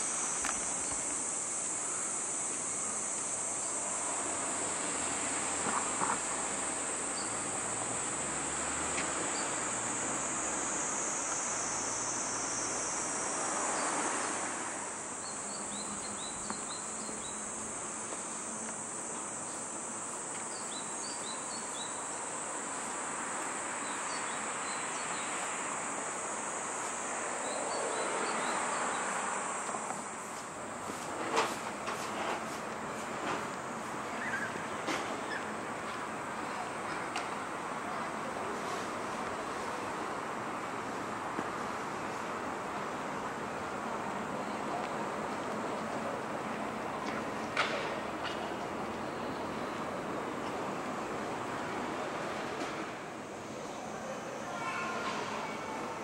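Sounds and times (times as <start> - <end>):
high-pitched insect drone: 0.0 - 30.1
road traffic: 0.0 - 56.0
cars passing: 3.8 - 15.8.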